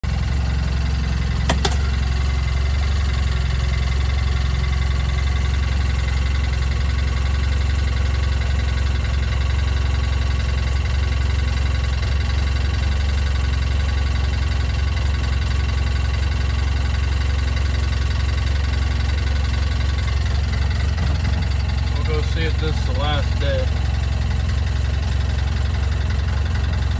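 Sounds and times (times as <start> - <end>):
vehicle engine humming: 0.0 - 26.9
sharp click: 1.5 - 1.9.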